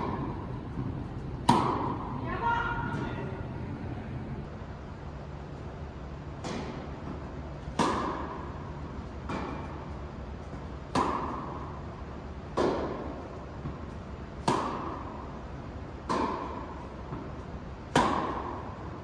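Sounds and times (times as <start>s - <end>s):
tennis racket hitting ball: 0.0s - 2.1s, 6.4s - 9.9s, 10.5s - 11.8s, 12.5s - 15.2s, 16.0s - 18.8s.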